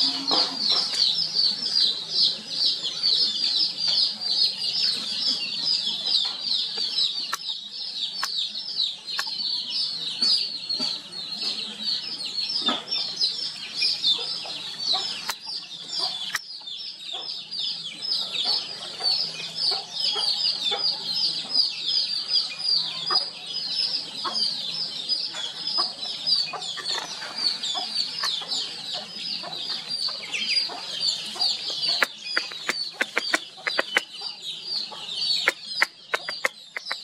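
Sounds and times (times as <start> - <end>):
chorus of bird chirps: 0.0 - 37.0
sharp clicks: 35.4 - 37.0.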